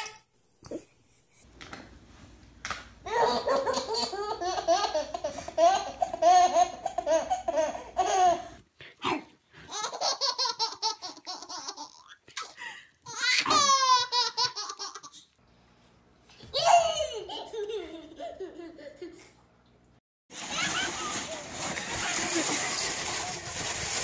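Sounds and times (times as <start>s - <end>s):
baby laughing: 3.1s - 8.6s, 9.7s - 15.2s, 16.5s - 19.3s.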